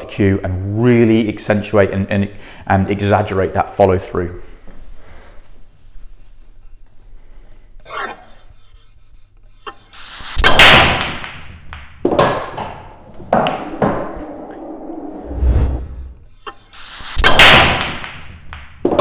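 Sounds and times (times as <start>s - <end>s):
low rumble: 13.7s - 16.3s.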